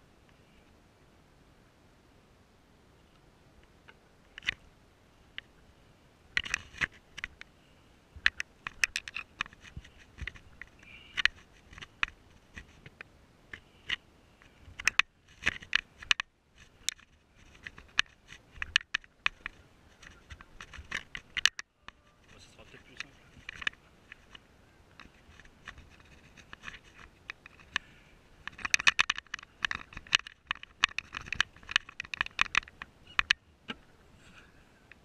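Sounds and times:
sharp scratches and clicks: 6.4 - 7.5, 8.2 - 33.4.

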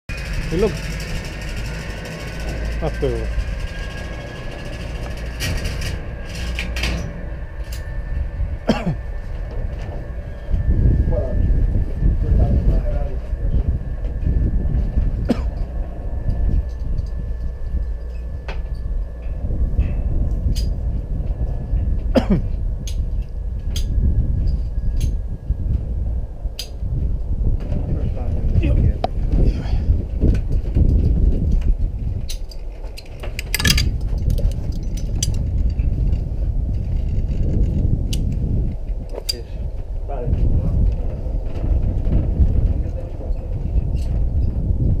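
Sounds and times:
wind rumbling on microphone: 0.1 - 45.0
handling clicks and rustles: 32.3 - 35.5.

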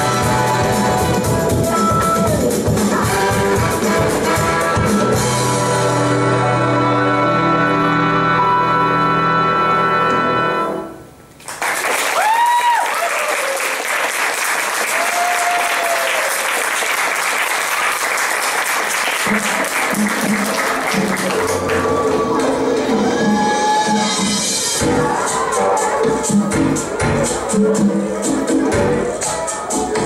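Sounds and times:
music with steady beat: 0.0 - 6.2, 19.3 - 30.0
stage music held chords: 0.0 - 11.4, 18.2 - 30.0
audience applause and cheering: 11.4 - 30.0
people shouting: 21.4 - 27.6.

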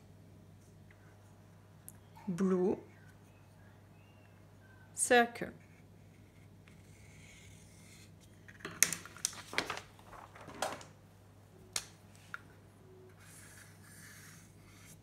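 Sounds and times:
marker scratching on whiteboard: 13.2 - 15.0.

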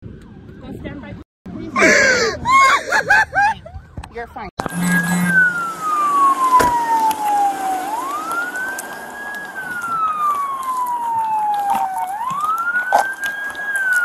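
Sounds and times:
police siren wailing: 4.6 - 14.0.

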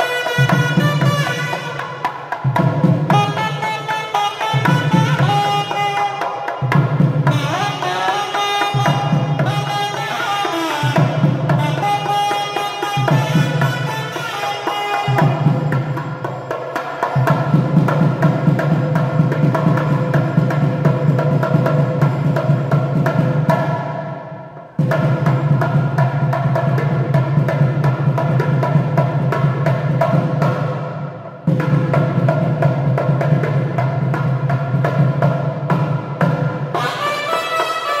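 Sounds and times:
double-reed pipe melody: 0.0 - 2.0, 3.1 - 6.6, 7.3 - 17.2, 36.8 - 38.0
rapid barrel drum strokes: 0.0 - 38.0.

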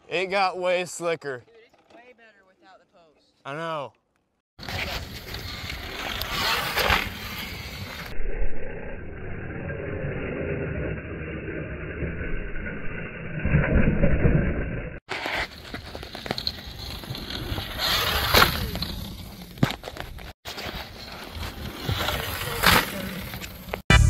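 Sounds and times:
tyre noise on dirt: 15.1 - 23.8.

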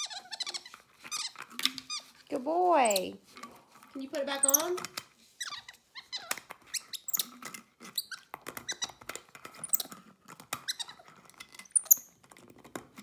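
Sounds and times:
monkey squeaking and chirping: 0.0 - 2.1, 4.4 - 4.8, 5.4 - 7.4, 9.6 - 9.9, 10.6 - 11.0, 11.6 - 12.1.

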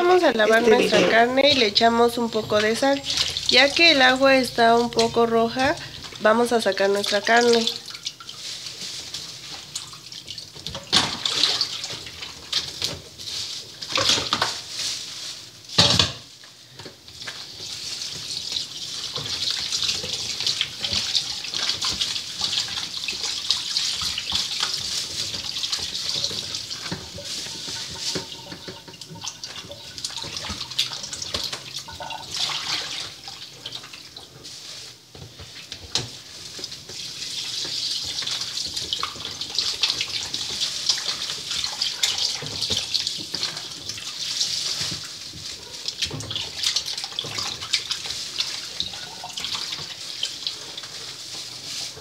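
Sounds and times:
faucet running into a bowl: 18.4 - 33.9, 46.0 - 50.5
hand swishing meat in water: 32.3 - 52.0.

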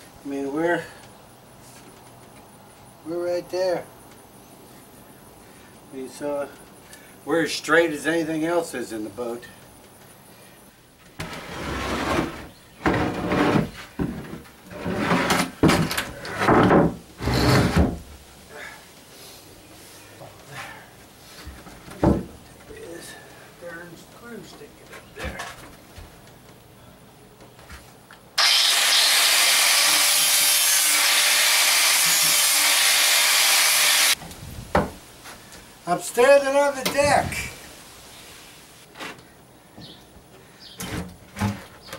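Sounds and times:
plywood scraping over wood: 11.2 - 18.0
angle grinder grinding: 28.4 - 34.2.

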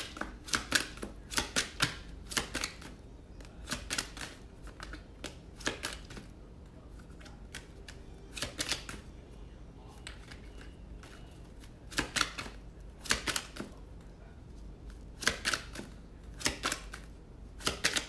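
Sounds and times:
cards being shuffled by hand: 0.0 - 9.1, 10.0 - 18.0.

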